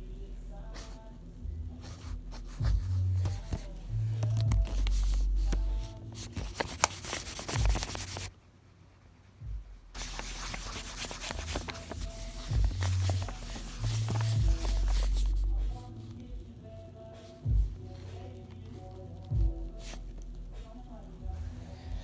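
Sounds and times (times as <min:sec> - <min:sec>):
fingertip rubbing on paper: 0:01.7 - 0:08.3, 0:10.0 - 0:15.9.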